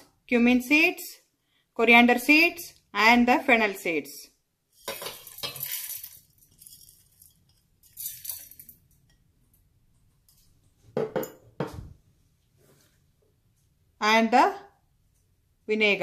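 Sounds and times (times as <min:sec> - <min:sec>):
spices rattling into a steel jar: 0:04.8 - 0:08.9.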